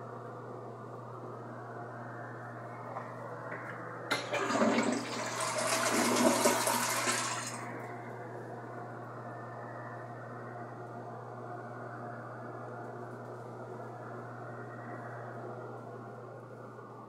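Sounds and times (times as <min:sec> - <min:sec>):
toilet flushing water rush: 0:04.1 - 0:07.7.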